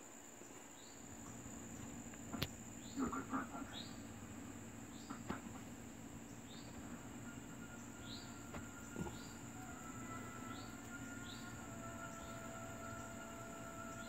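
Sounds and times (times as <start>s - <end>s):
high-pitched insect drone: 6.0s - 14.0s.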